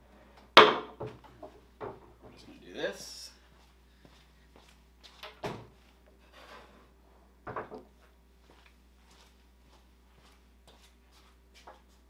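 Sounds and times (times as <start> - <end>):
faint footsteps: 3.3 - 6.2, 7.9 - 12.0.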